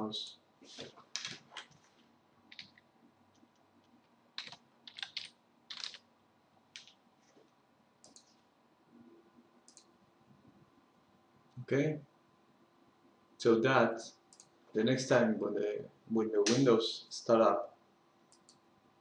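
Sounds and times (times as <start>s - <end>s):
computer keyboard clicks: 2.5s - 2.8s, 4.4s - 6.0s, 6.8s - 7.0s, 8.0s - 8.3s.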